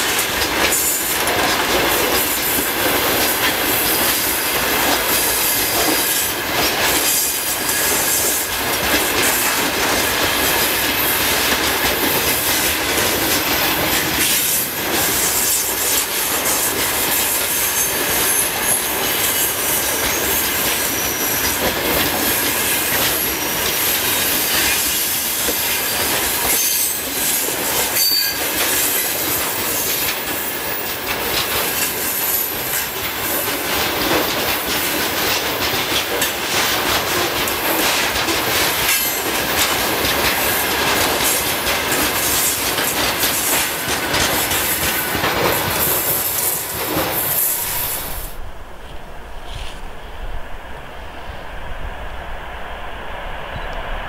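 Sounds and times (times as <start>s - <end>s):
train wheel clacks: 0.0s - 48.4s
high wheel squeal: 17.2s - 21.7s, 26.5s - 27.4s, 28.0s - 30.9s.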